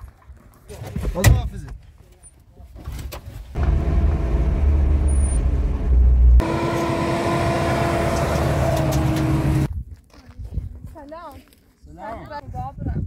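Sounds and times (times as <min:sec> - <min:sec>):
vehicle engine rumbling: 0:03.5 - 0:09.7.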